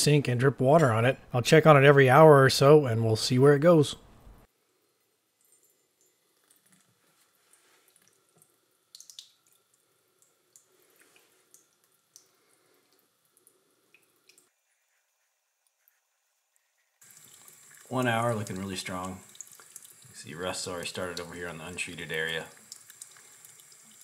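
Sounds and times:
water dripping onto knife blade: 7.9 - 14.5, 17.0 - 24.0.

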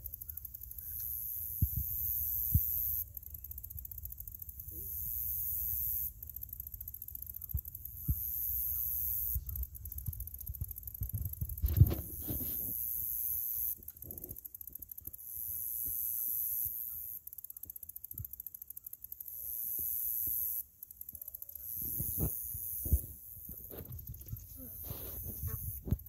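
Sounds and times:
thin high hiss: 21.7 - 26.0.

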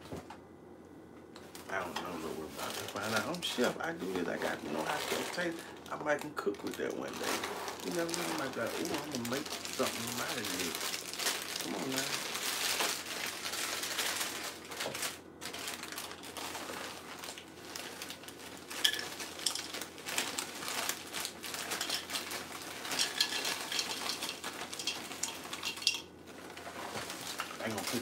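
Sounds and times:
packaging rustling: 1.4 - 28.0
cereal rattling into bowl: 6.8 - 28.0.

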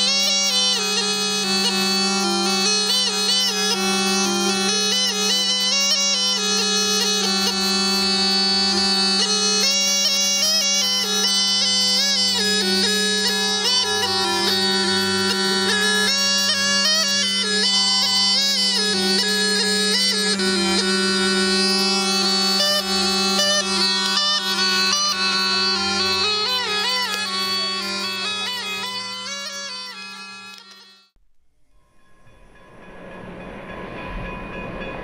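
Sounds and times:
reedy wind instrument melody: 0.0 - 31.2
low drone: 6.6 - 30.6.

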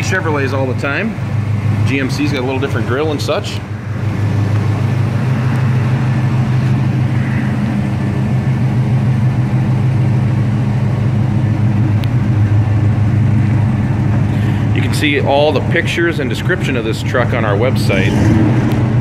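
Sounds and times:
pickup truck engine rolling past: 0.0 - 19.0.

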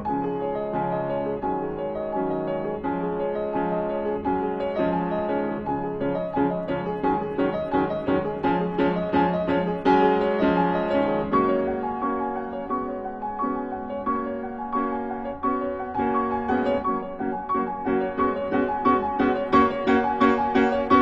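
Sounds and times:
gentle piano music: 0.0 - 21.0.

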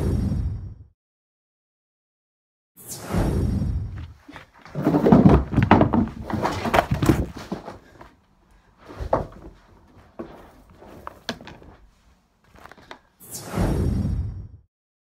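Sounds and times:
clothes and shoes thumping on carpet: 4.7 - 8.1, 8.8 - 11.9.

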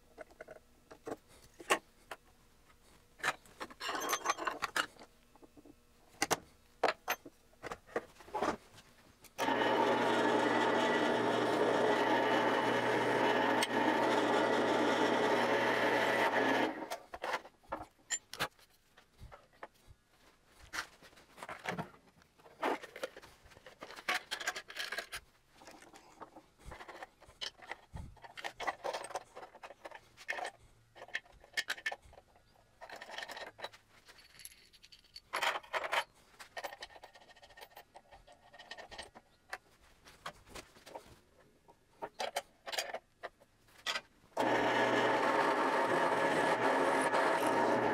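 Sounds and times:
drill press running: 9.4 - 16.9, 44.4 - 47.9.

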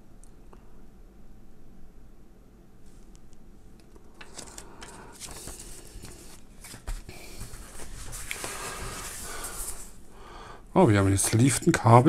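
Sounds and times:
paper manual rustling: 4.2 - 10.0.

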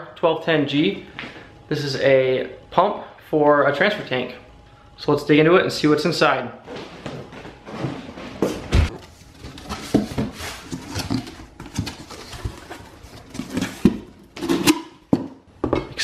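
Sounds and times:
cardboard box rustling and scraping: 6.9 - 14.5.

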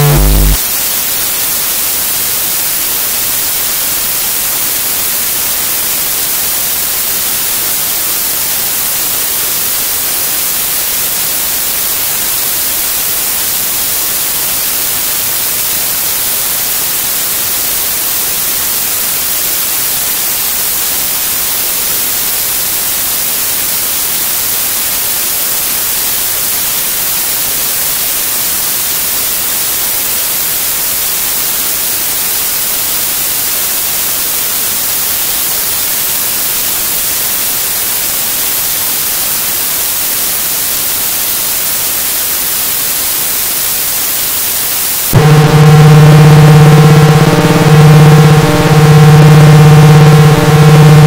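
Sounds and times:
sustained low chord: 0.0 - 0.6, 45.2 - 51.0
loud white-noise hiss: 0.0 - 51.0.

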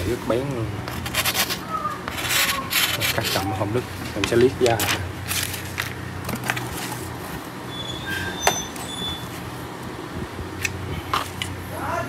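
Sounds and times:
steady low hum: 0.0 - 12.0
brief squeaks: 7.7 - 9.4.

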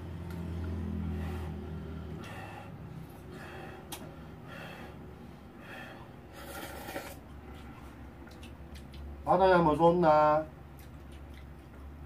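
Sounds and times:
soft breathing: 0.9 - 8.1
person eating noodles: 6.3 - 9.2.

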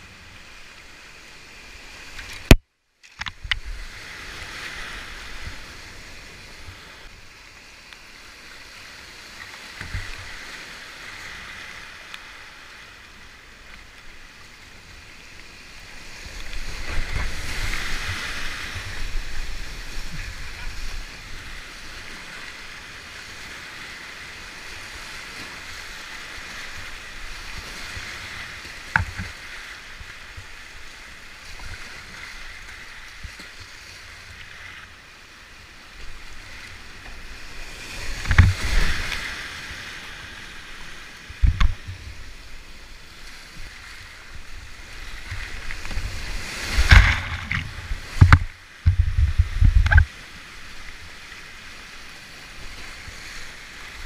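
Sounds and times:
water splashing against boat: 13.2 - 35.0, 35.9 - 54.0.

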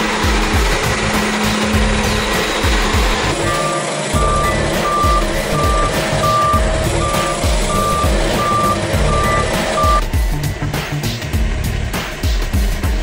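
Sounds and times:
road roller engine running: 0.0 - 13.0
reversing alarm beeping: 3.3 - 10.1.

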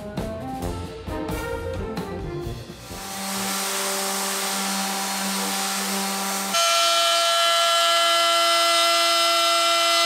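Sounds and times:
orbital sander humming: 2.8 - 10.0.

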